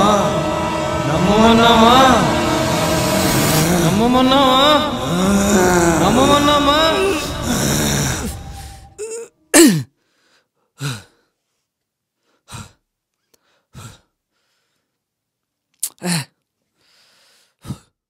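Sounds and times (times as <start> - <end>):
man sighing and breathing: 7.1 - 9.9, 15.8 - 17.9.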